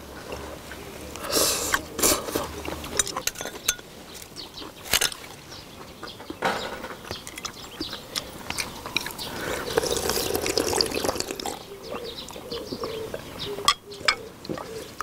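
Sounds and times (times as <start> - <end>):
loud slurping: 1.2 - 2.7, 8.6 - 12.1
dripping: 7.2 - 12.0.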